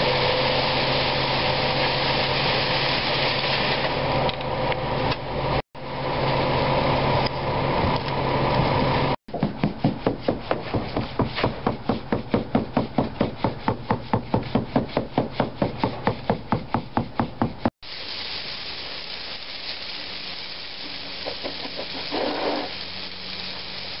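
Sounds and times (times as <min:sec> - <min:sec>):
garden hose spraying water: 0:00.0 - 0:04.2, 0:17.8 - 0:24.0
concrete sliding down chute: 0:20.4 - 0:23.0.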